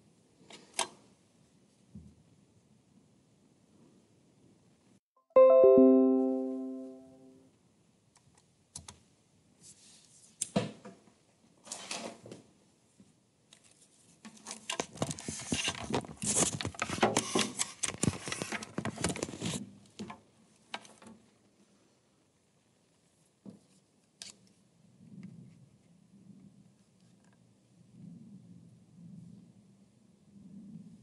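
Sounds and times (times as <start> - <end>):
musical note: 5.3 - 7.4.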